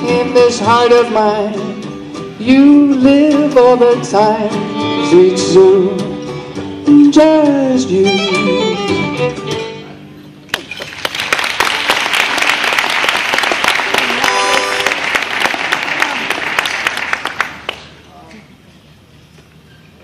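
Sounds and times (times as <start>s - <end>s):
audience applauding: 10.5s - 18.0s
audience cheering: 13.9s - 16.7s.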